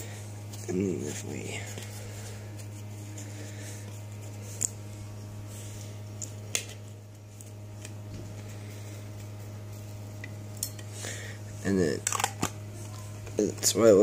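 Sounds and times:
steady low hum: 0.0 - 14.0
sharp clicks of objects handled: 12.0 - 12.6.

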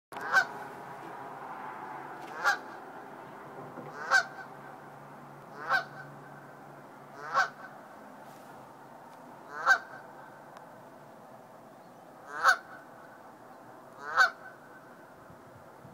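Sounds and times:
goose honking: 0.2 - 0.7, 2.3 - 2.8, 3.8 - 4.6, 5.5 - 6.4, 7.1 - 7.8, 9.4 - 10.3, 12.2 - 12.9, 14.0 - 14.9.

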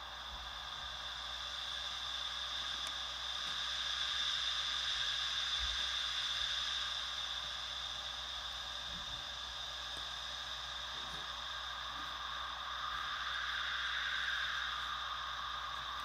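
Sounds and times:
synthesizer white noise hiss: 0.0 - 16.0.

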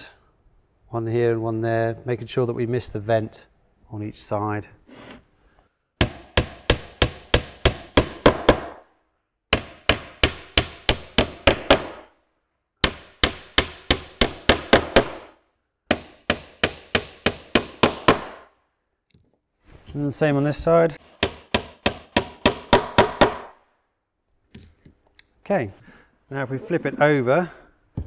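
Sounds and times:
hammer driving pins into wood: 6.0 - 8.9, 9.5 - 12.2, 12.8 - 15.3, 15.9 - 18.5, 21.0 - 23.6.

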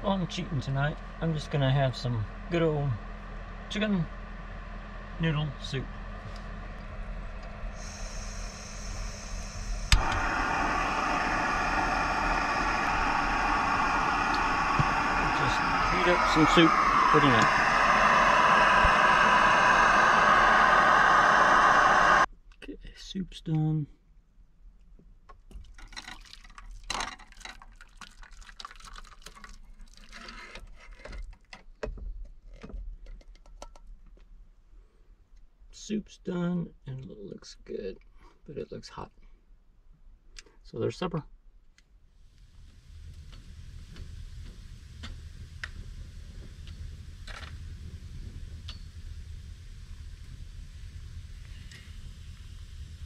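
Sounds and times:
burner flame rushing: 5.6 - 22.3, 42.3 - 53.0
hiss of gas: 7.6 - 22.3, 42.3 - 53.0
soup pouring into a bowl: 25.8 - 30.2.

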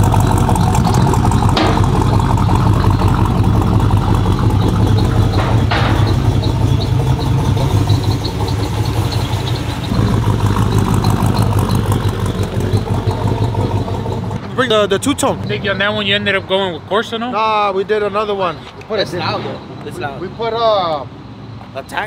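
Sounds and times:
engine idling low rumble: 0.0 - 16.9.

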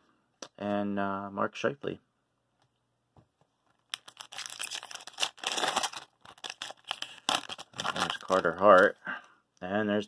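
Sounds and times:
foil wrapper tearing and crinkling: 3.9 - 8.9.

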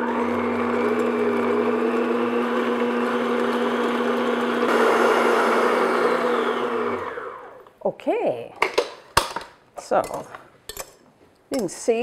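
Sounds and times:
stand mixer whisking cream: 0.0 - 7.5.

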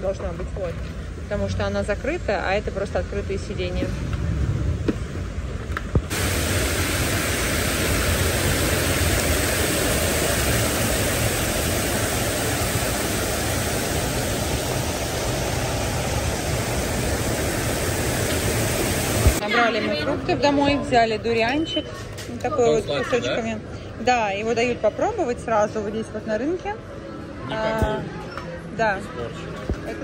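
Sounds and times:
steady rushing noise: 4.3 - 19.4.

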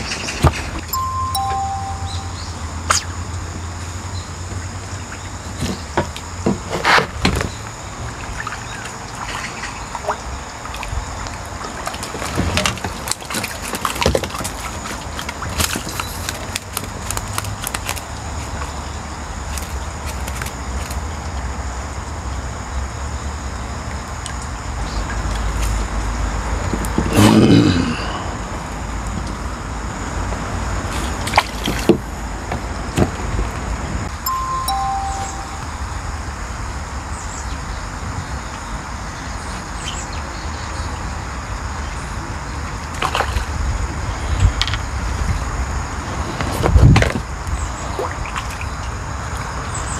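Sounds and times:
water splashes and knocks: 5.5 - 16.8, 31.0 - 33.4.

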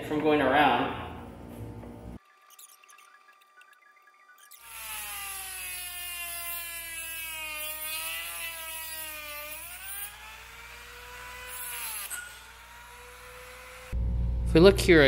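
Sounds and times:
rotary tool cutting into metal: 4.4 - 14.0.

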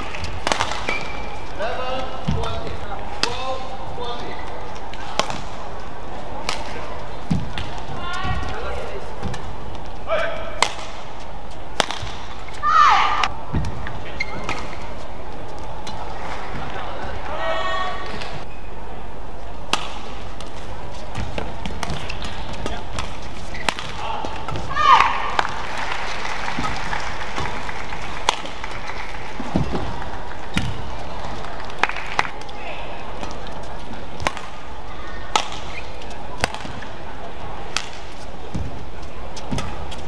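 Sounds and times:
racket striking shuttlecock: 0.0 - 1.3, 4.9 - 5.6, 10.5 - 11.1, 11.7 - 14.8, 19.6 - 25.6, 28.2 - 29.9, 33.2 - 34.6, 35.3 - 36.9, 37.7 - 38.7, 39.4 - 40.0.

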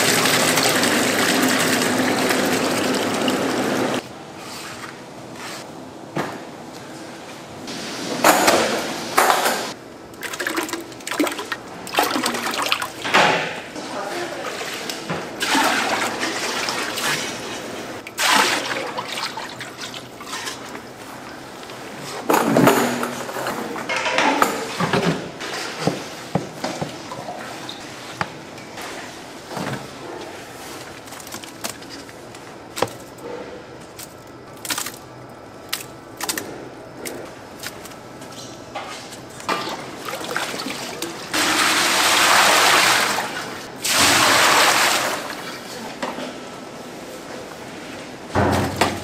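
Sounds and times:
water pouring and sloshing: 0.0 - 4.0, 10.1 - 21.1, 30.6 - 32.2, 38.8 - 46.0.

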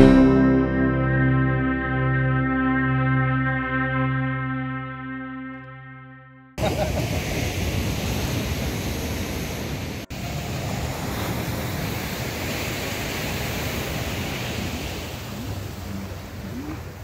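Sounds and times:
surf washing onto beach: 6.6 - 17.0
wind rumbling on microphone: 6.6 - 17.0.

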